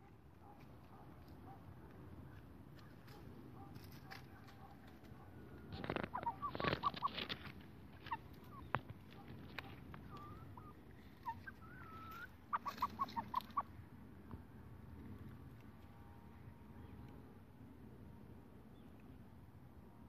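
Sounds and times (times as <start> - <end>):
cockerels clucking: 2.8 - 13.8
cockerel drawn-out calls: 9.7 - 13.7.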